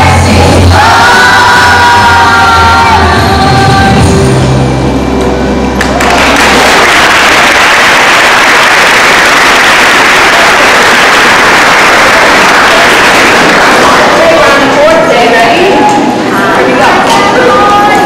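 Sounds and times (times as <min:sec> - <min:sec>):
audience applauding: 0:05.8 - 0:14.8.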